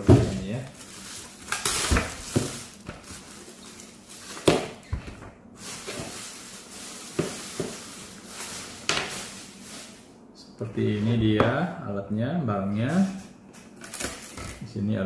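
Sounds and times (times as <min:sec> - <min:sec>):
plastic bag crinkling: 0:00.4 - 0:04.9, 0:05.6 - 0:10.1.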